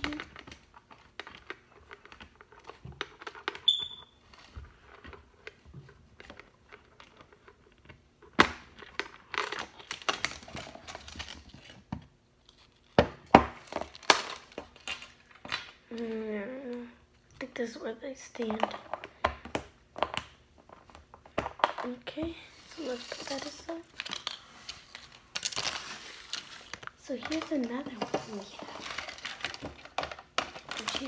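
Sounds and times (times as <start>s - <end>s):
plastic toy container handling: 21.5s - 31.0s.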